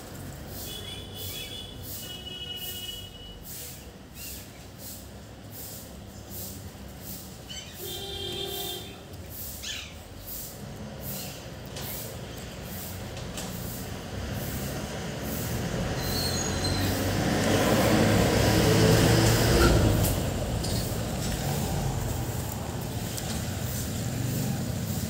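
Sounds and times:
brief high squeal: 16.0 - 17.0
rumbling noise: 17.5 - 24.8.

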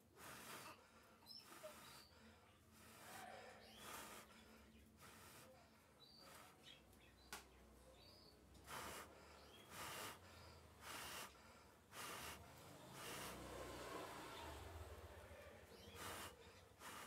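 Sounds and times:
canary chirps: 0.3 - 11.4, 15.6 - 17.0
soft puffs of noise: 8.2 - 17.0.

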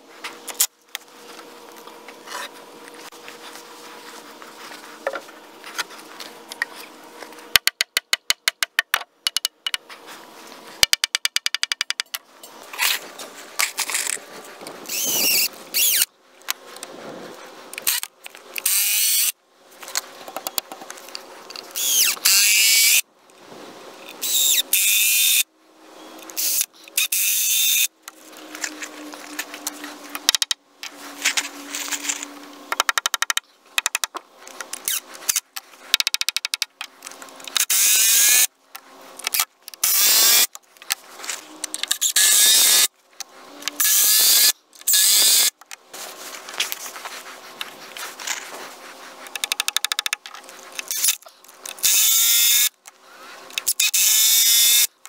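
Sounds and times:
cordless drill driving fasteners: 14.9 - 16.1, 17.8 - 19.3, 37.5 - 38.5, 39.2 - 40.6, 41.8 - 42.9, 43.7 - 45.5, 50.8 - 52.7, 53.6 - 54.9.

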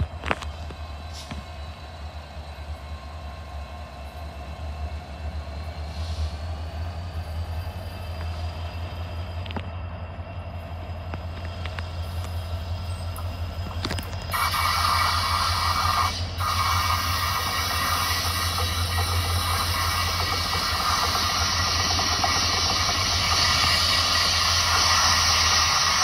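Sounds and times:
diesel locomotive hum: 0.0 - 26.0
loud steady hiss: 14.3 - 26.0.

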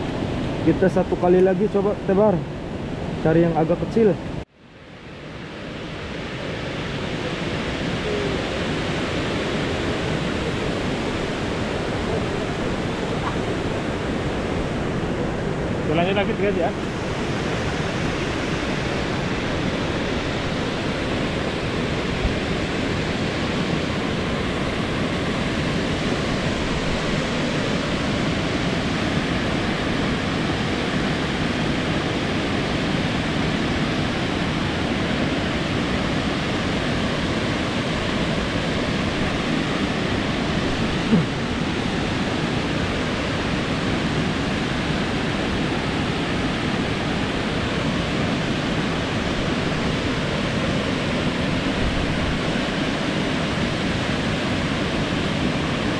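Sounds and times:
river water flowing: 0.0 - 55.9.

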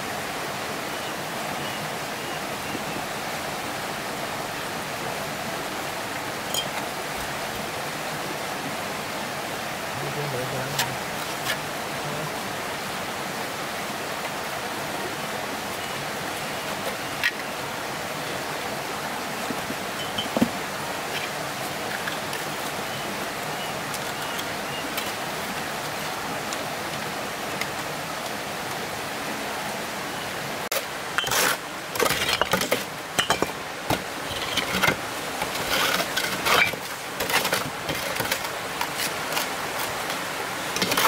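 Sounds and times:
flowing water: 0.0 - 41.0
clinks and knocks: 6.5 - 6.9, 20.0 - 20.6, 32.0 - 38.5.

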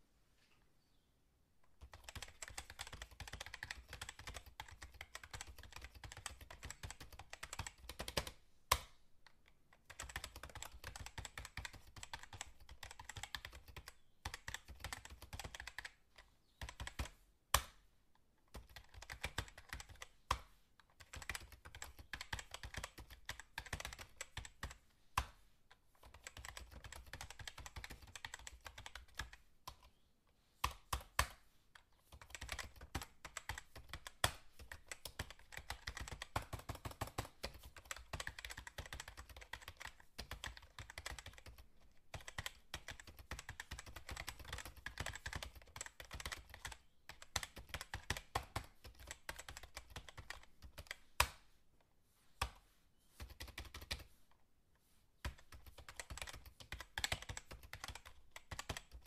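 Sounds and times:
fast keyboard typing: 1.8 - 8.4, 9.8 - 16.0, 16.6 - 17.2, 18.5 - 20.1, 21.0 - 24.8, 26.0 - 29.9, 32.1 - 51.0, 53.2 - 54.1, 55.2 - 59.0.

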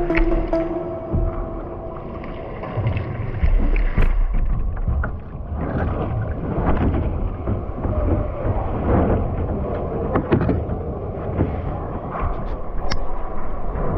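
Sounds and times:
low rumble: 0.0 - 10.0
water sloshing against hull: 0.0 - 13.9.

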